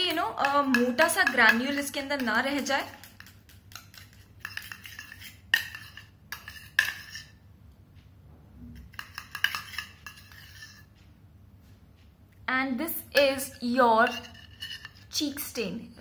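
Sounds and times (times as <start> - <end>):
spoon clinking on steel bowl: 0.0 - 7.4, 8.8 - 10.9, 13.2 - 15.4
spoon stirring and scraping paste: 0.0 - 7.4, 8.7 - 11.0, 12.9 - 15.7.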